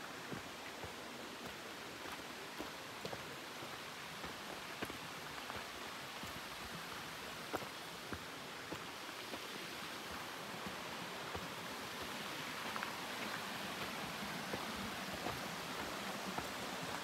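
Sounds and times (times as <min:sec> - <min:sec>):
waterfall rushing: 0:05.7 - 0:17.0.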